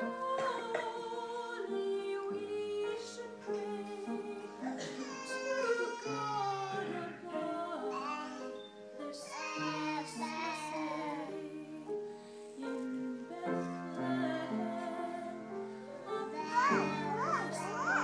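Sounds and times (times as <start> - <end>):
high voice singing slow melody: 0.0 - 11.9, 16.0 - 18.0.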